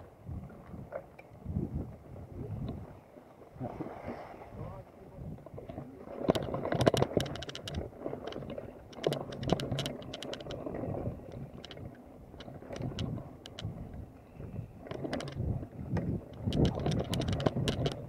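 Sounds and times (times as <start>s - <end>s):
bike rattling over bumps: 6.2s - 10.8s, 14.8s - 18.0s.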